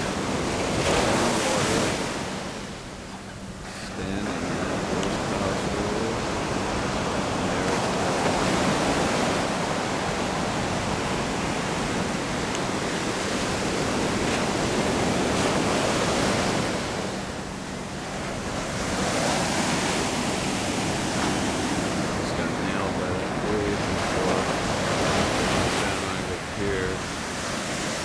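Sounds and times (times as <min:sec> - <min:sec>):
ocean water rushing: 0:00.0 - 0:28.0
wind on microphone: 0:00.0 - 0:28.0.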